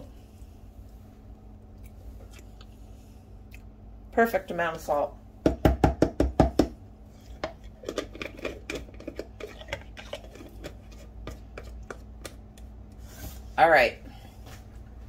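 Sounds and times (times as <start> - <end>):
spoon scraping jar: 7.1 - 12.0.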